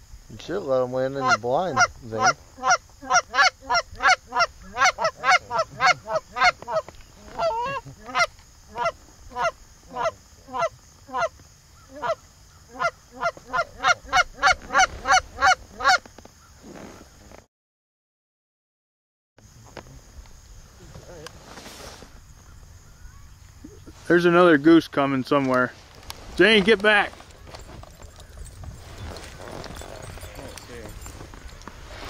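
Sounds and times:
goose honking: 1.1 - 11.3, 11.9 - 16.0.

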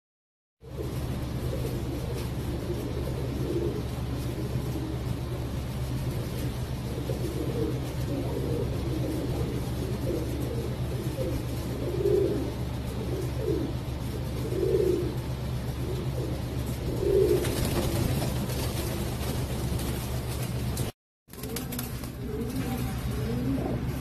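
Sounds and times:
pigeons cooing: 0.6 - 24.0
steady low hum: 0.6 - 24.0.

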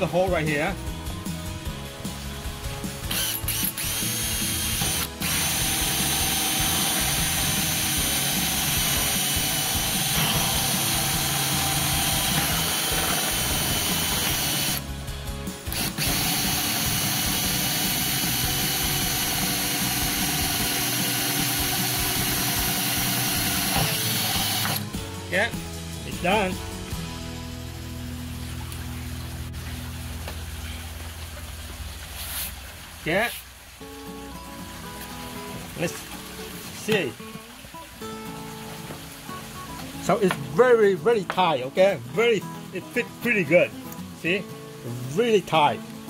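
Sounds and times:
power drill cutting plastic: 3.0 - 14.9, 15.7 - 24.9.

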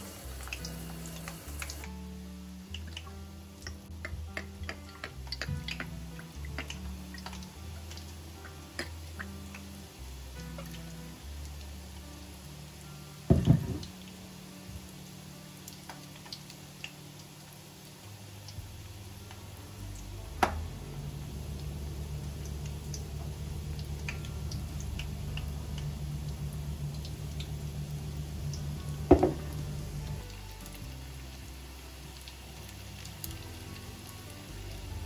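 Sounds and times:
drips: 0.0 - 2.0, 2.7 - 9.7, 18.4 - 35.0
sharp knocks: 13.3 - 13.8
steady low hum: 18.6 - 30.8.

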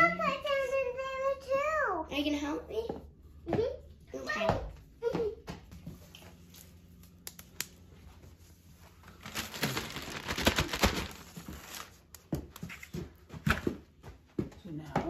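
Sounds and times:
plastic bag of sand crinkling: 9.0 - 12.1.

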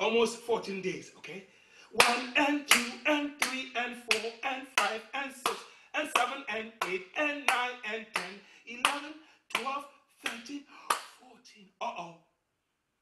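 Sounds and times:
man chanting: 0.0 - 12.3
hands clapping rhythmically: 2.0 - 11.4.

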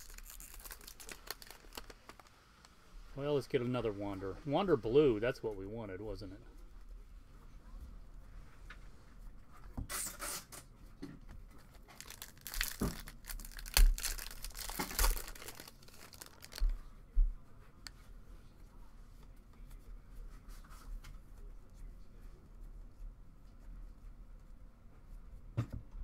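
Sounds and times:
foil wrapper crackling: 0.0 - 2.4, 11.8 - 16.7.

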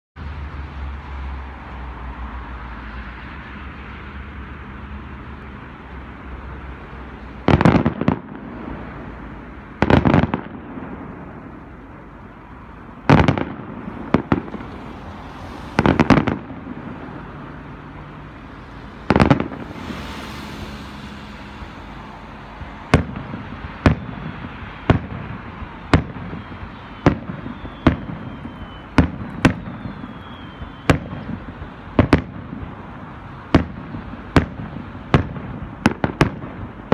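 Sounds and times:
firework shells bursting: 18.4 - 32.8.

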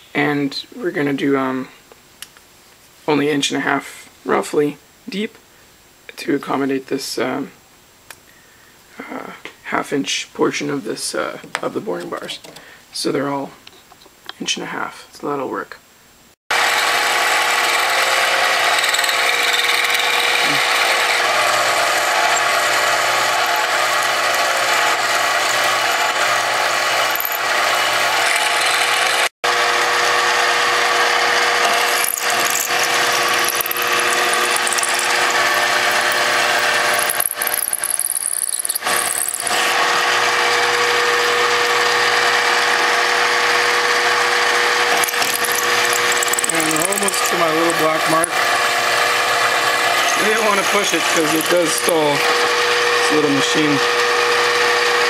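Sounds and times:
lathe motor tone: 16.6 - 55.0.

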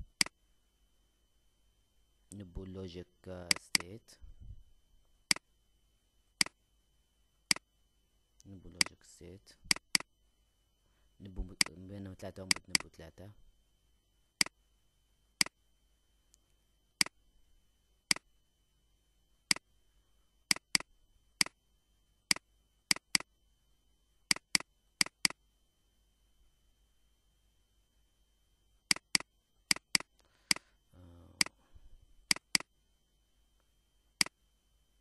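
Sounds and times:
computer mouse clicking: 0.1 - 0.3, 3.5 - 3.9, 9.7 - 10.1, 11.6 - 11.8, 12.5 - 12.9, 20.5 - 21.6, 22.3 - 23.3, 24.3 - 25.4, 28.9 - 30.6, 32.3 - 32.7.

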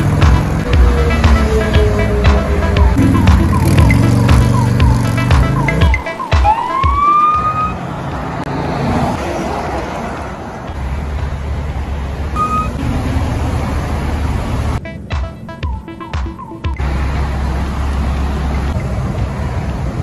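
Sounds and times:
freeway traffic rushing: 0.0 - 20.0
steady siren-like tone: 5.6 - 7.8
siren whoop: 6.3 - 7.8.

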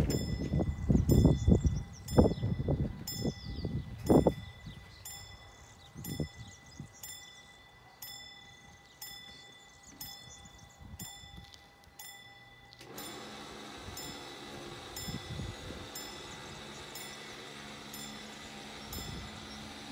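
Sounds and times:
level crossing warning bell: 0.0 - 19.9
barrier motor hum: 11.7 - 19.9.

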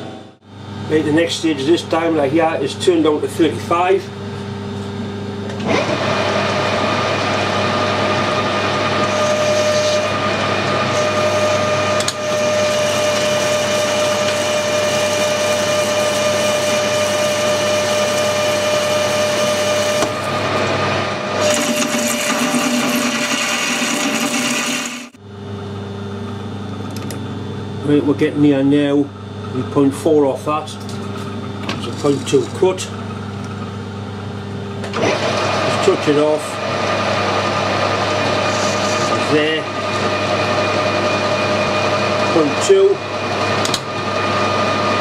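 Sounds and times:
lathe spindle humming: 5.6 - 25.2, 31.2 - 45.0
lathe tool cutting metal whine: 5.6 - 25.2, 35.0 - 45.0.

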